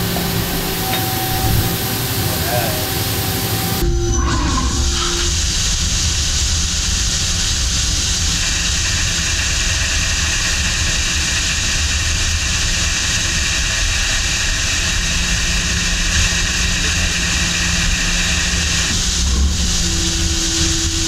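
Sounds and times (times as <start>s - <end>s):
coolant spray and cutting hiss: 0.0s - 3.8s, 4.6s - 21.0s
lathe spindle running: 0.0s - 4.0s, 10.5s - 21.0s
faint steady whine: 0.0s - 21.0s.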